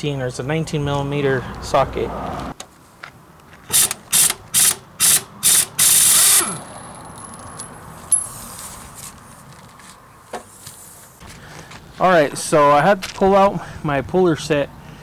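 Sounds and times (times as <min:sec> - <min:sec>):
air impact wrench hammering: 0:03.7 - 0:06.7.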